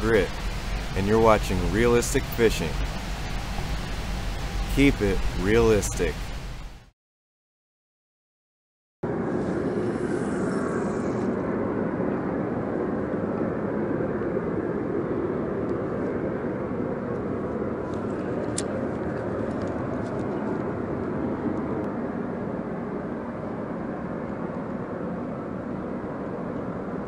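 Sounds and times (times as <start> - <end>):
industrial plant roar: 0.0 - 6.8.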